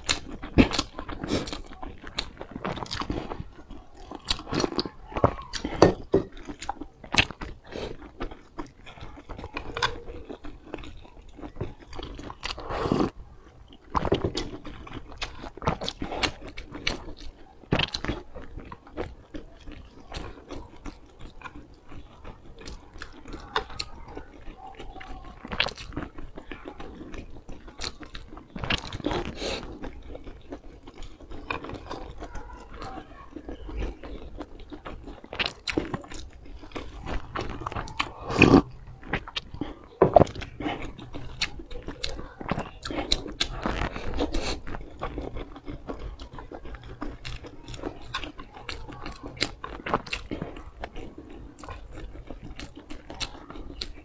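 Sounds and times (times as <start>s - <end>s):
person chewing: 0.0s - 54.0s
clicking mouth sounds: 22.6s - 54.0s.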